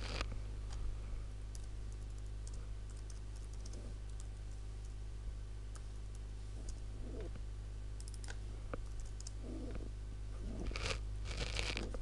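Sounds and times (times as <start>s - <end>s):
low steady hum: 0.0s - 12.0s
computer keyboard typing: 1.5s - 4.3s, 8.0s - 9.4s.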